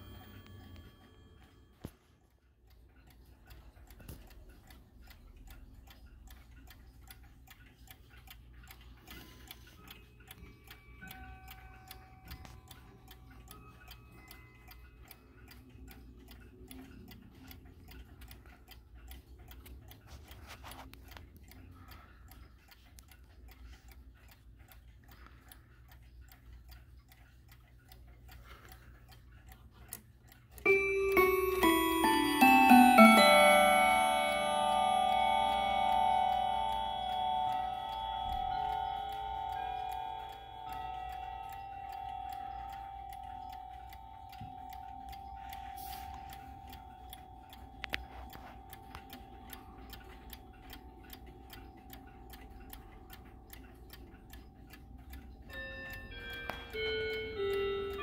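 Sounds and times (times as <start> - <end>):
clock ticking: 0.0 - 58.0
metal chime rods ringing: 30.6 - 58.0.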